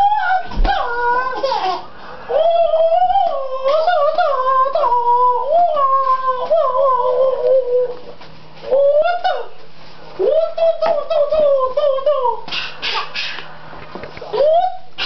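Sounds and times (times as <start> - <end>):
child wavering vocalization: 0.0 - 8.1.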